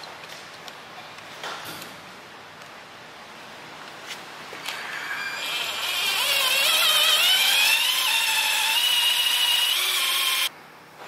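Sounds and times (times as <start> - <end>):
power drill whining: 4.7 - 10.5.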